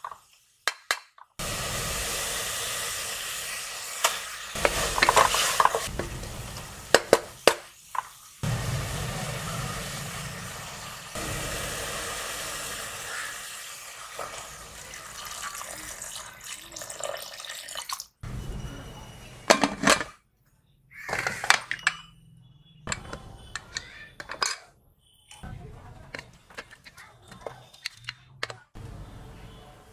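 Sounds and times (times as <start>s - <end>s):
water pouring into a pot: 1.4s - 7.0s, 8.4s - 18.2s.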